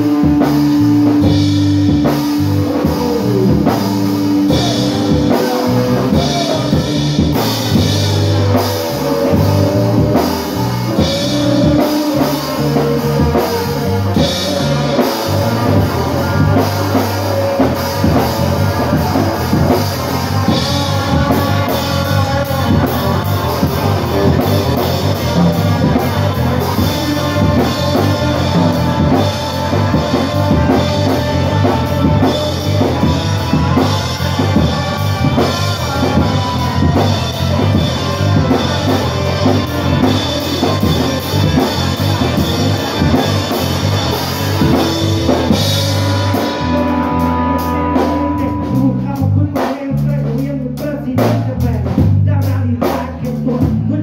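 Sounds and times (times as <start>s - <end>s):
electric guitar: 0.0s - 52.2s
drum kit beat: 0.0s - 54.0s.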